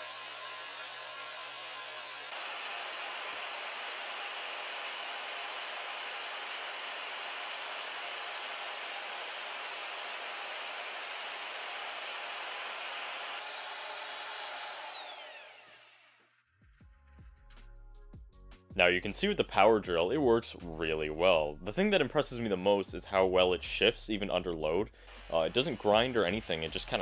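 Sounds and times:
power drill whirring: 0:00.0 - 0:16.4, 0:25.0 - 0:27.0.

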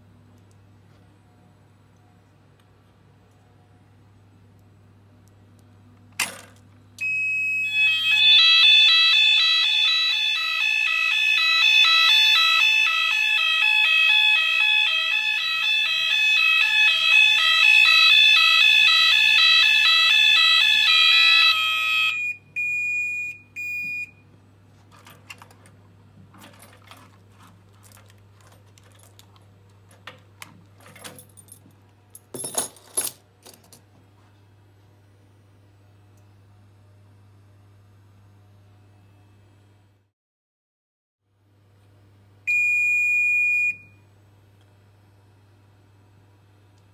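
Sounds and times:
pulsing electronic alarm tone: 0:07.0 - 0:23.3
keys jangling: 0:30.8 - 0:33.8
short beeps: 0:42.5 - 0:44.0.

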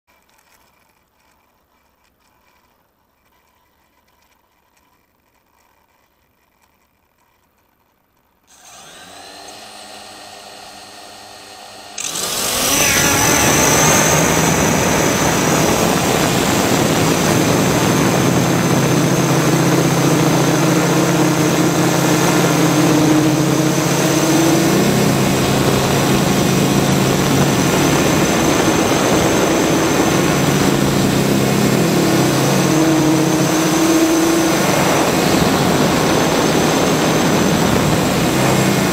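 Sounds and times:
drone motors and propellers: 0:08.5 - 0:38.9.

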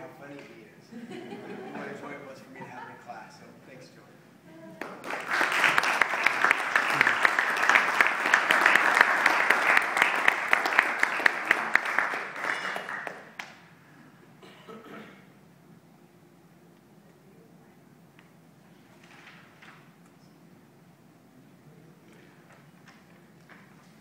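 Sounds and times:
audience applauding: 0:04.7 - 0:13.6.

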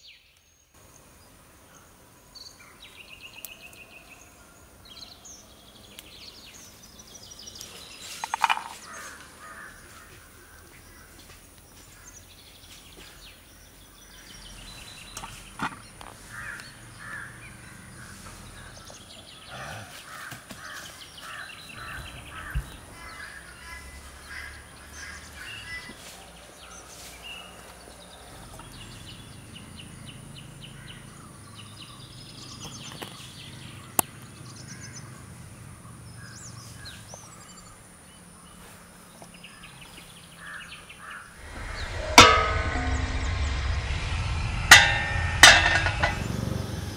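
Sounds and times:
crows cawing: 0:08.9 - 0:10.6, 0:19.6 - 0:25.2.

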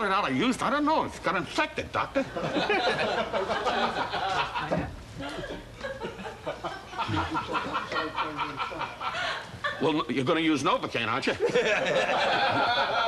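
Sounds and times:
people chuckling and snickering: 0:02.2 - 0:09.9.

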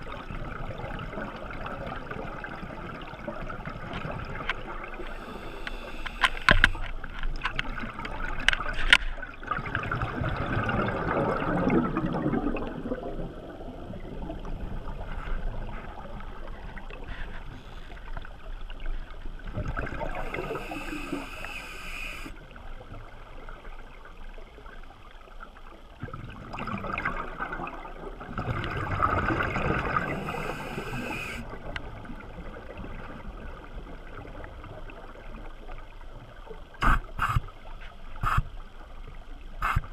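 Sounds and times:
exhaled bubbles gurgling: 0:00.0 - 0:06.6, 0:07.6 - 0:17.2, 0:18.0 - 0:24.6, 0:26.0 - 0:37.4
regulator inhale hiss: 0:05.1 - 0:06.8, 0:20.0 - 0:22.4, 0:30.1 - 0:31.5, 0:36.8 - 0:37.5, 0:38.2 - 0:38.5, 0:39.6 - 0:39.9.

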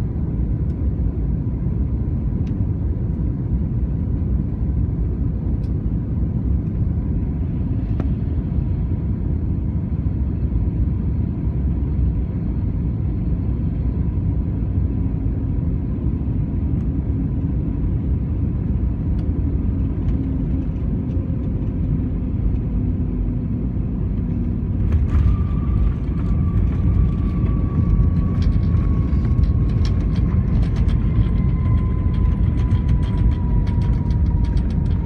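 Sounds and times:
airliner engine and airflow rumble: 0:00.0 - 0:35.0
whine dropping in pitch: 0:24.2 - 0:35.0.

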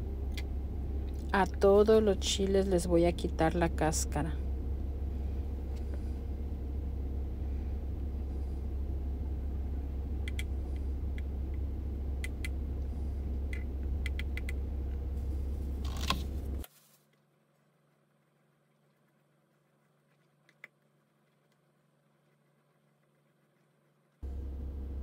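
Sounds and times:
low rumble: 0:00.0 - 0:16.6
plastic bag rustling: 0:15.2 - 0:17.1.

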